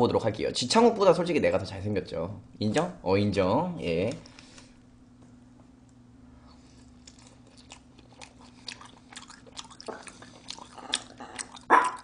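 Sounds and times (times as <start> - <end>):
chewing with mouth smacks: 6.6 - 12.0.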